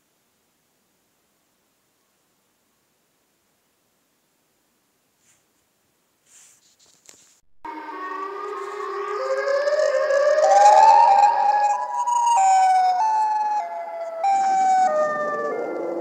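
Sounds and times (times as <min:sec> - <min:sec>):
siren wailing: 0:07.7 - 0:16.0.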